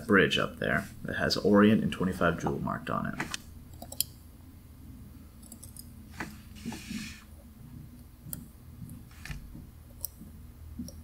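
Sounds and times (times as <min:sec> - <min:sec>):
low steady hum: 0:00.0 - 0:11.0
soft rustle: 0:06.1 - 0:07.3.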